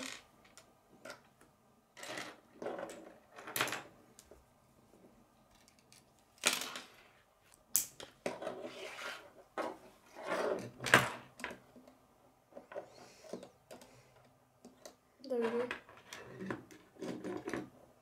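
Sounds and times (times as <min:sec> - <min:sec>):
plastic pieces clicking and clattering: 0:05.5 - 0:07.0.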